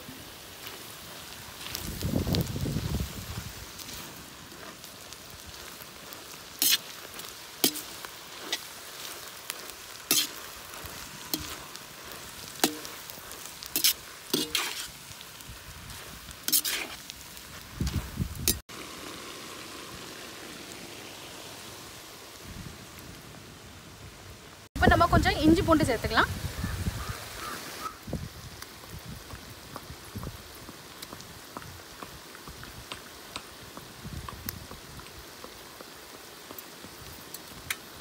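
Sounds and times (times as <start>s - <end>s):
vegetables sizzling in a wok: 0.0s - 38.0s
metal spatula scraping a pan: 6.6s - 9.2s, 10.0s - 11.8s, 12.4s - 15.0s, 16.4s - 17.1s.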